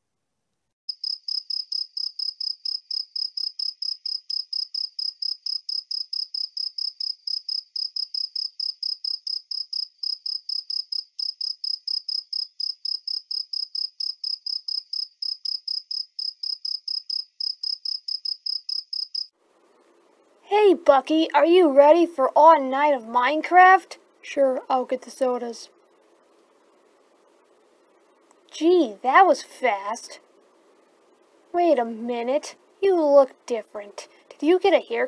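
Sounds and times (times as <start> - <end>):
cricket chirping: 0.9 - 19.8.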